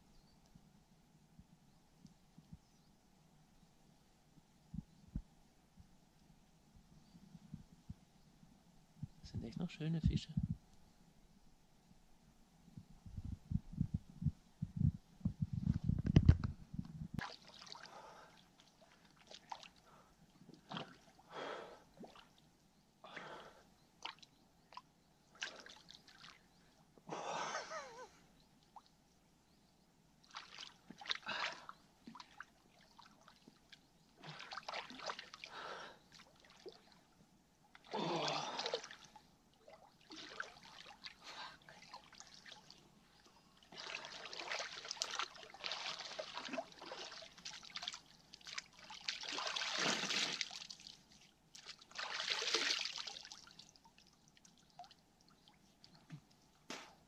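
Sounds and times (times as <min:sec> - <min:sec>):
lake water splashing: 0:17.2 - 0:22.5, 0:23.1 - 0:26.6, 0:30.2 - 0:37.1, 0:37.7 - 0:55.6.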